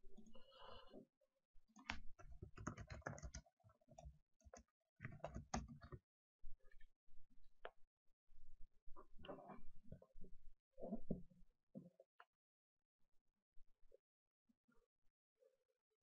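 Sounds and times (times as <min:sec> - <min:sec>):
faint keyboard typing: 0:01.8 - 0:06.0.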